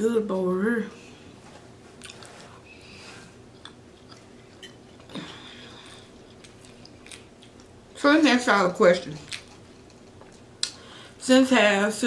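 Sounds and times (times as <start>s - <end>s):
person chewing food: 1.9s - 8.0s, 9.2s - 10.9s.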